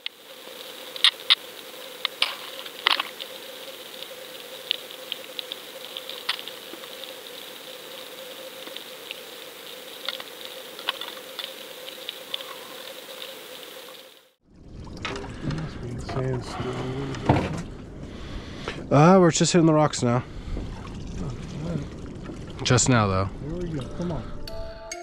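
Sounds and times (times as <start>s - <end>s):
sharp clicks and crackles: 0.0s - 14.0s
underwater low hum: 0.0s - 24.8s.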